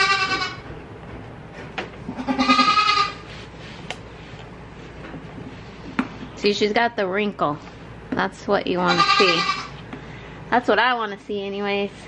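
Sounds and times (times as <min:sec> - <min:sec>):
goat bleating: 0:00.0 - 0:00.7, 0:02.1 - 0:03.2, 0:08.8 - 0:09.8.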